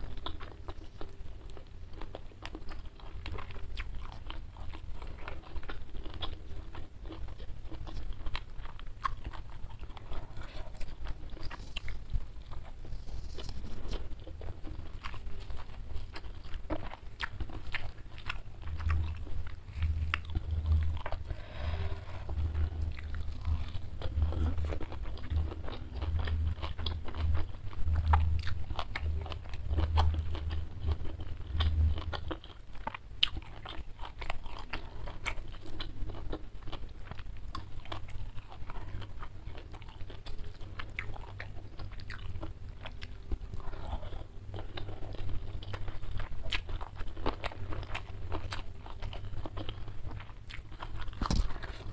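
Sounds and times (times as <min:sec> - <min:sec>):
chewing and crunching food: 0:00.0 - 0:51.9.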